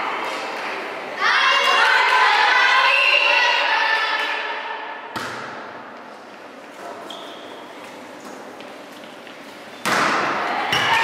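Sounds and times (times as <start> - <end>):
hand striking volleyball: 5.1 - 5.7.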